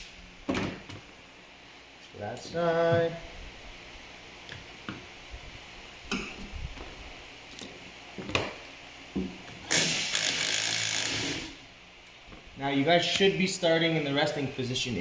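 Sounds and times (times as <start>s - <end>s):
cordless impact wrench running: 9.7s - 11.6s.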